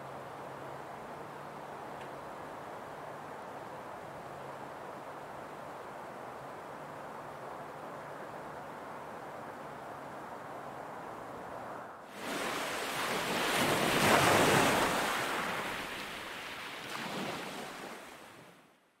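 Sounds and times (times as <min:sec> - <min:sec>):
ocean surf: 0:08.9 - 0:18.6.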